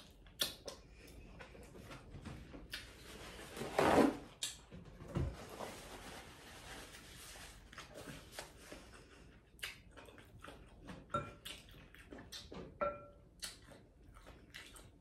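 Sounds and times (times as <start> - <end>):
paper towel rustling: 2.9 - 4.2, 5.2 - 9.0.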